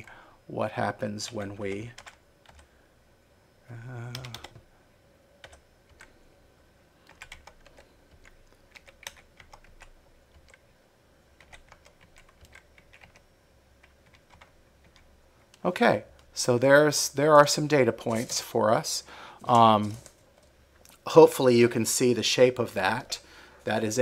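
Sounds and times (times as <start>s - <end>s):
man's voice murmuring: 3.6s - 4.5s.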